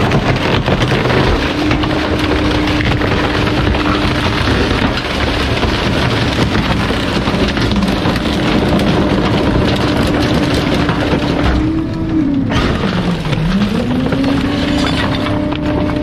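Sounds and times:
truck engine running: 0.0s - 16.0s.

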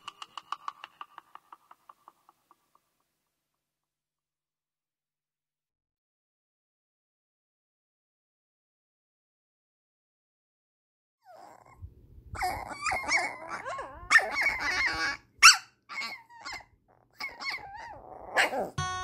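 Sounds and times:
puppies growling and whining: 11.2s - 18.8s
puppy yapping: 11.3s - 11.8s, 12.4s - 18.8s.

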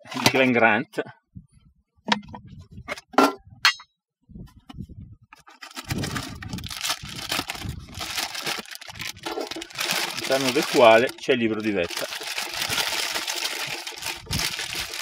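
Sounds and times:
plastic container scraping in tin: 5.4s - 15.0s.

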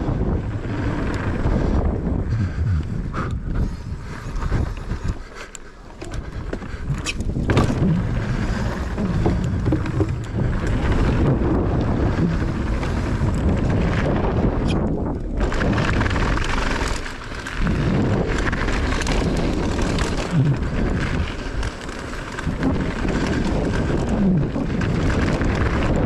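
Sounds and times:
wind buffeting microphone: 0.0s - 5.4s, 6.0s - 26.0s
mountain bike riding fast: 0.0s - 26.0s
bike knocks and rattles: 5.8s - 26.0s.

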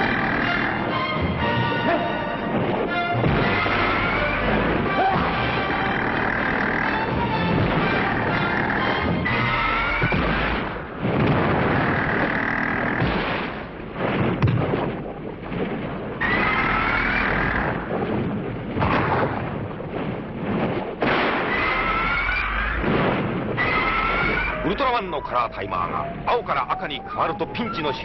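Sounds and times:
noisy fight sounds: 2.5s - 24.7s
monster screech: 23.6s - 24.8s.

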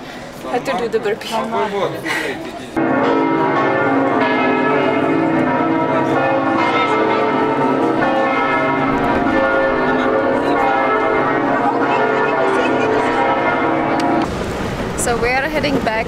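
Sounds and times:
church bells ringing: 2.8s - 14.4s.

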